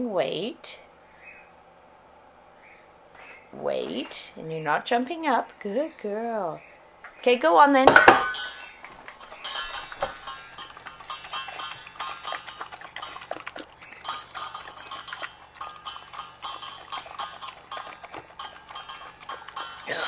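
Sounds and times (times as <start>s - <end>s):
muzzle clinking against metal bowl: 7.9s - 20.0s
puppy chewing and lapping: 8.3s - 20.0s.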